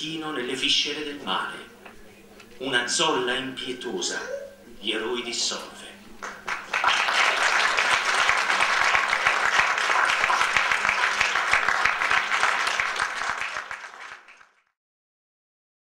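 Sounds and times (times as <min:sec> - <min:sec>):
audience applauding: 0:06.2 - 0:14.7.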